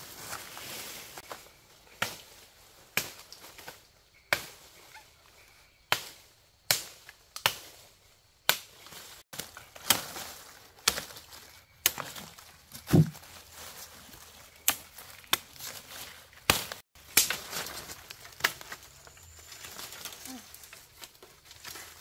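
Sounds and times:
sharp chopping blows: 12.9s - 13.2s.

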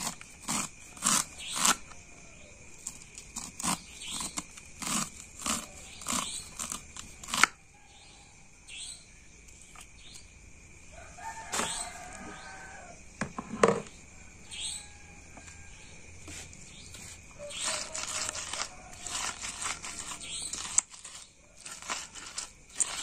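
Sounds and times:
rooster crowing: 10.9s - 13.0s, 14.1s - 16.1s, 17.3s - 23.0s.

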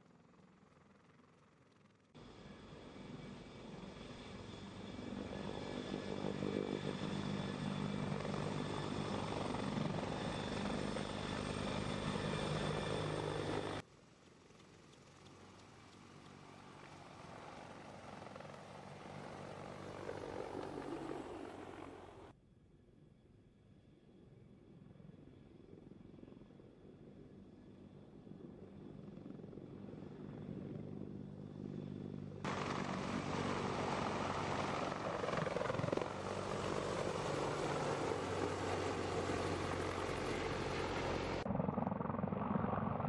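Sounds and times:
helicopter flying past: 0.0s - 22.4s, 23.8s - 43.0s.

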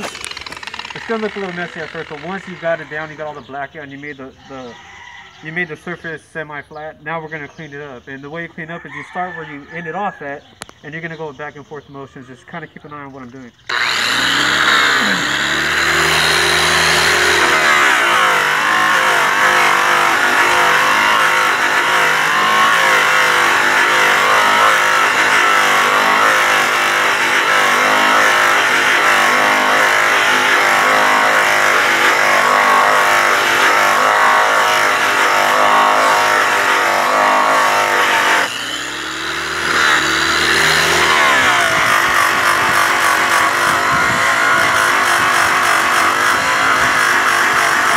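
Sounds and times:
angle polisher motor running: 0.0s - 3.5s, 13.7s - 47.9s.

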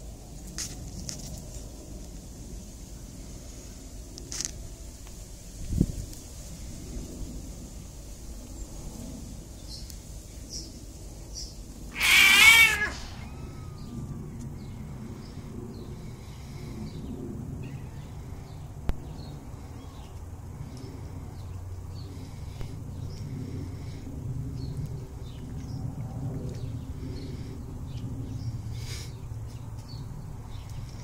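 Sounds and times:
kitten meowing: 12.0s - 13.9s.

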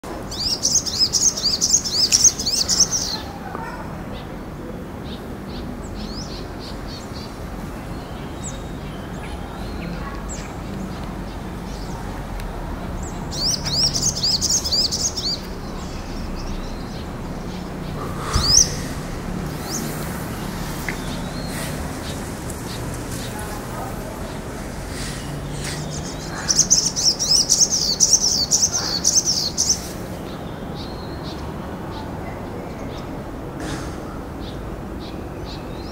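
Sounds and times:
bird twittering: 13.3s - 22.8s
low background rumble: 15.1s - 22.4s.

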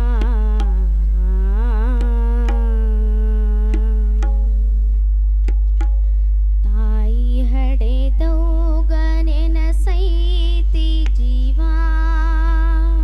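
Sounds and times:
girl singing into a microphone: 0.0s - 4.4s, 6.7s - 13.0s
steady low hum: 0.0s - 13.0s
sharp percussive strokes: 1.8s - 4.7s, 5.4s - 6.2s.

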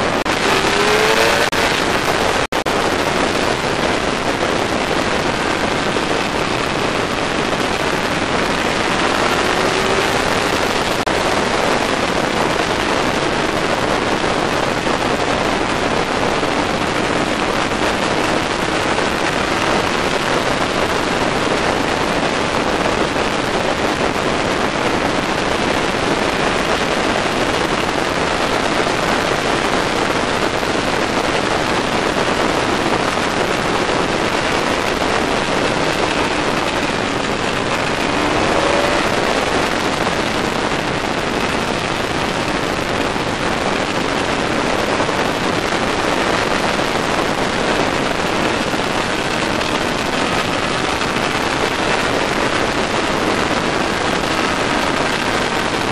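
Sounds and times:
faint motorcycle engine: 0.0s - 20.6s, 32.8s - 42.6s
loud wind rush on microphone: 0.0s - 55.9s.

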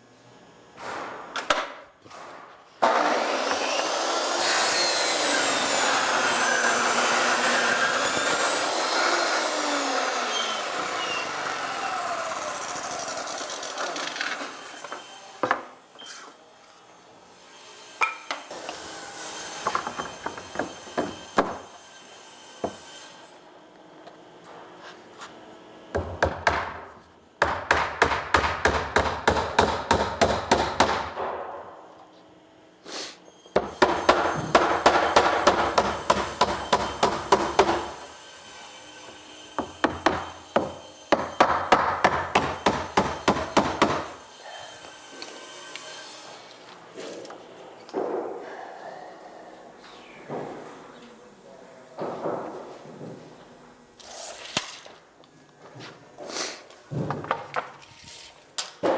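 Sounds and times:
miter saw winding down: 5.2s - 14.3s
hammer driving nails: 27.4s - 31.5s, 33.6s - 38.0s, 39.6s - 44.2s
knocks of boards handled: 56.9s - 57.8s.

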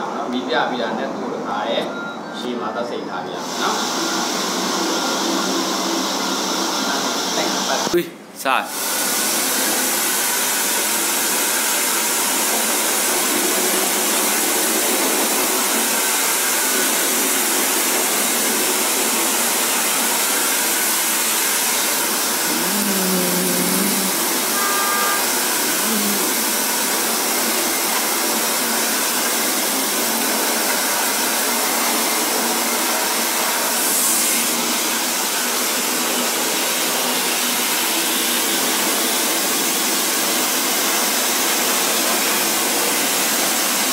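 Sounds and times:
electric hair dryer running: 3.4s - 7.9s, 8.7s - 43.9s.

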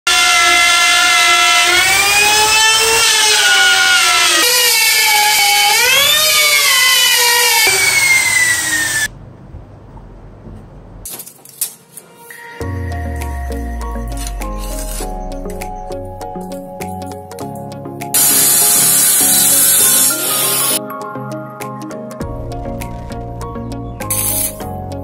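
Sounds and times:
router whining cutting wood: 0.1s - 9.1s, 13.4s - 15.8s, 18.2s - 20.8s.

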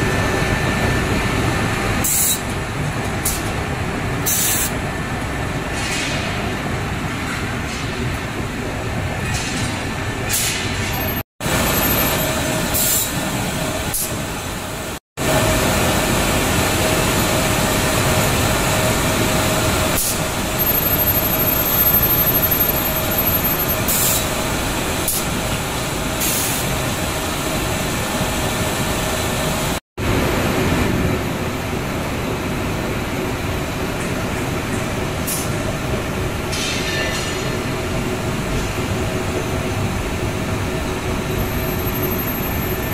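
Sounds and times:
glass grinding machine running: 15.3s - 23.9s.

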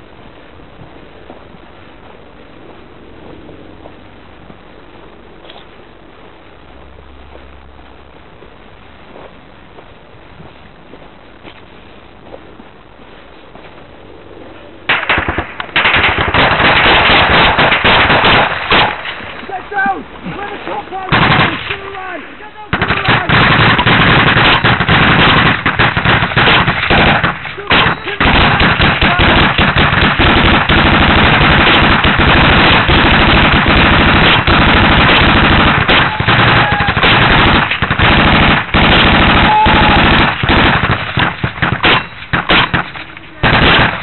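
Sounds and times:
automatic gunfire: 14.9s - 19.2s, 21.1s - 22.0s, 22.7s - 44.0s.

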